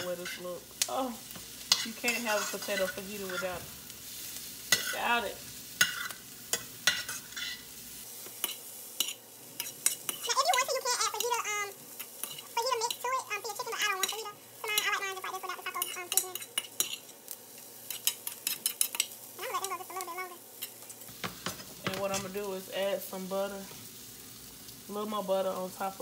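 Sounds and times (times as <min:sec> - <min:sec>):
vegetables sizzling: 0:00.0 - 0:26.0
metal spoon scraping skillet: 0:01.3 - 0:05.2, 0:05.8 - 0:07.7, 0:08.3 - 0:22.4
person talking: 0:10.3 - 0:11.8, 0:12.6 - 0:16.4, 0:19.4 - 0:20.4, 0:21.8 - 0:23.7.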